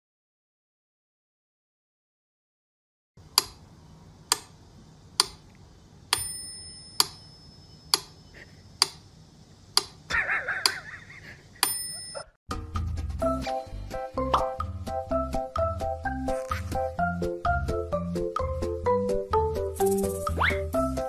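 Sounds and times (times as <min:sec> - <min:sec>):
metronome bell ring: 0:06.2 - 0:07.9, 0:11.6 - 0:12.4.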